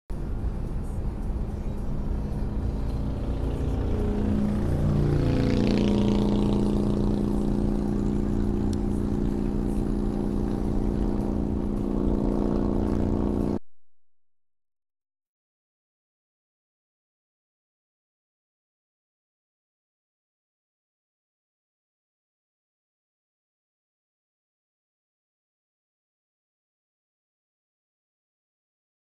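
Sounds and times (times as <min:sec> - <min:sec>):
car road noise: 0:00.1 - 0:13.6
loud motorcycle exhaust passing: 0:00.3 - 0:13.6.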